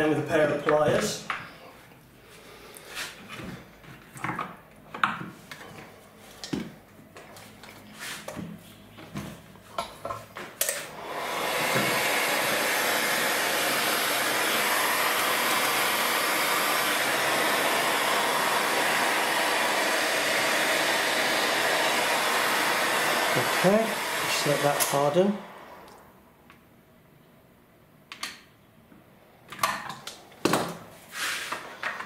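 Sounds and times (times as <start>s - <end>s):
heat gun blowing: 10.6s - 26.2s, 31.1s - 31.7s.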